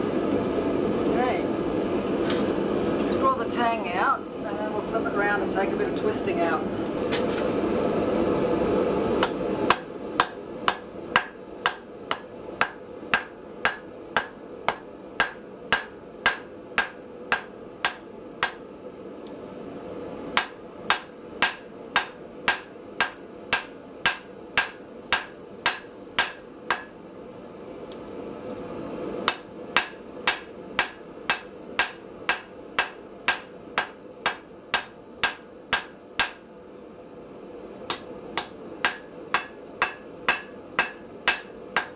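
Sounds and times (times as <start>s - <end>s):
hammer striking hot steel on anvil: 9.2s - 18.6s, 20.4s - 27.0s, 29.2s - 36.5s, 37.9s - 41.9s.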